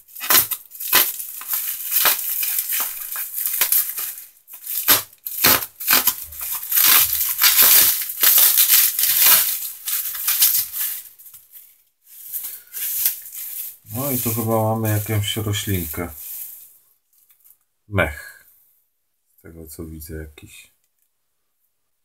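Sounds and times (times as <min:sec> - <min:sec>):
bubble wrap crinkling: 0:00.0 - 0:17.7
bubble wrap clicks: 0:00.1 - 0:11.6, 0:12.3 - 0:16.6.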